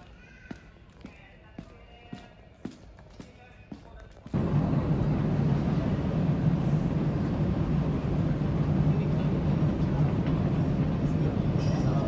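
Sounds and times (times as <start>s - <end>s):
low terminal hum: 4.4s - 12.0s.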